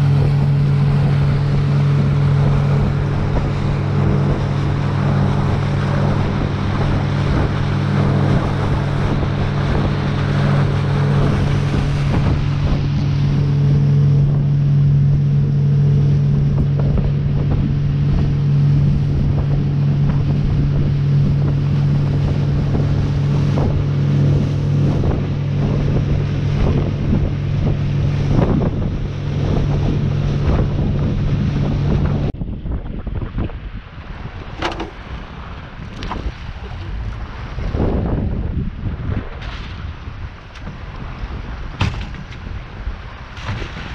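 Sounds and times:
bow wave rushing: 0.0s - 32.4s, 33.4s - 43.9s
water slapping against hull: 0.0s - 32.4s, 33.1s - 43.9s
boat engine droning: 0.0s - 43.9s
wind on the microphone: 0.0s - 43.9s.

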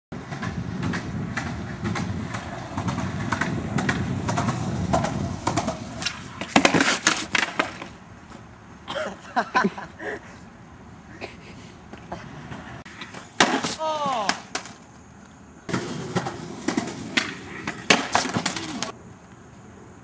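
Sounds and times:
skateboard wheels rolling on asphalt: 0.1s - 20.0s
skateboard clattering on ground: 0.2s - 8.5s, 11.9s - 19.0s.

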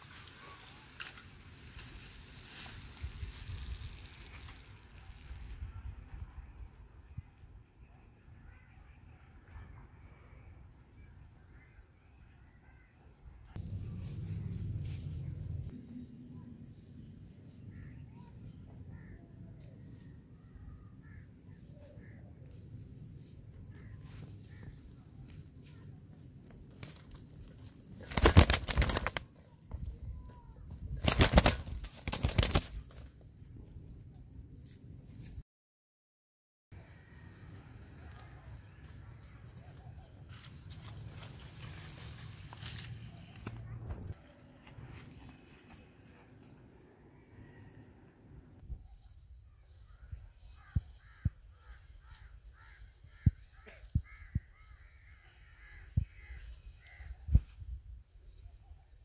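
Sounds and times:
pigeon wings flapping: 26.8s - 29.5s, 31.0s - 33.1s.

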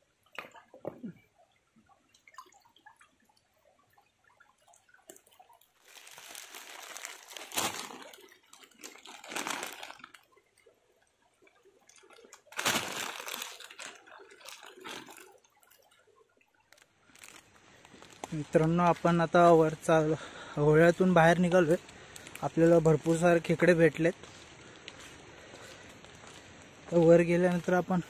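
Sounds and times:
water splashing: 0.0s - 28.0s
plastic bag crinkling: 5.8s - 10.3s, 12.5s - 15.3s, 16.7s - 18.4s.

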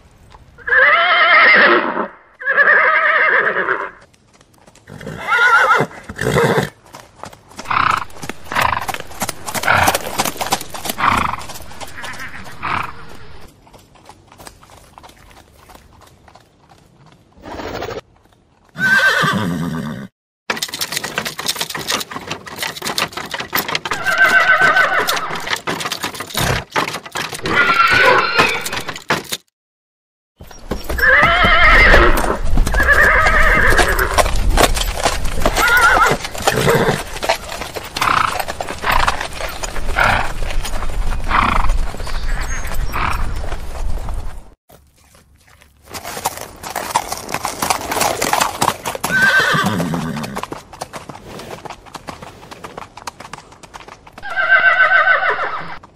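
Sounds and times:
horses neighing and whinnying: 0.6s - 4.0s, 4.8s - 6.8s, 7.6s - 13.5s, 18.7s - 20.1s, 20.8s - 29.2s, 30.4s - 43.6s, 46.3s - 50.6s, 54.2s - 55.8s
hooves clip-clopping: 3.4s - 19.9s, 20.5s - 29.4s, 30.4s - 55.9s.

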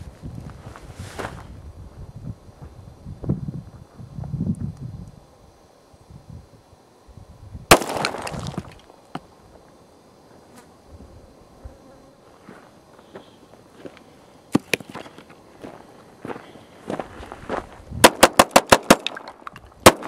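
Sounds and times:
pistol shot: 7.7s - 8.3s, 18.0s - 20.0s
footsteps on gravel: 7.8s - 8.8s, 12.3s - 18.0s.

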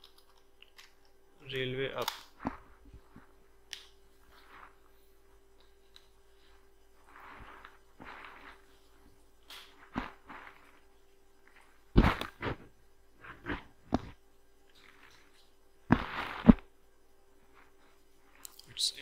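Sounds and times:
dull thumps and knocks: 11.9s - 12.7s.

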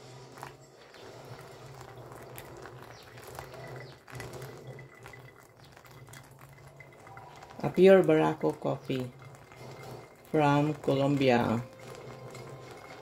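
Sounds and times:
bubbles crackling: 0.0s - 13.0s
water trickling onto coffee grounds: 0.0s - 13.0s.

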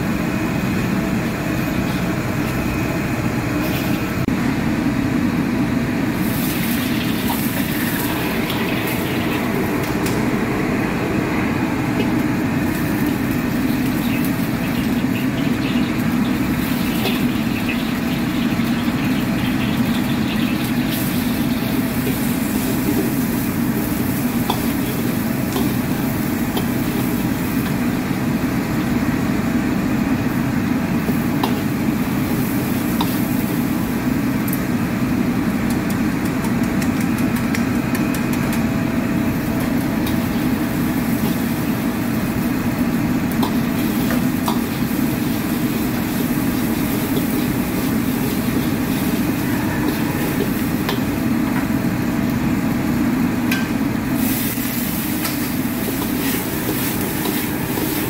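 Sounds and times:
gas burner rumbling: 0.0s - 58.0s
food hissing in wok: 54.2s - 58.0s.

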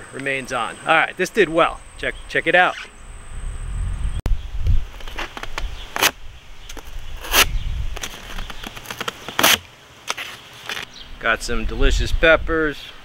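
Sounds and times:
knife slicing through cardboard: 7.2s - 8.1s, 9.3s - 10.8s.

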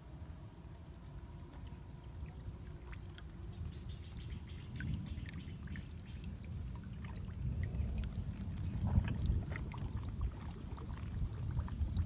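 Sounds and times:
water sloshing and splashing: 0.0s - 12.0s
water drips: 0.7s - 12.0s.

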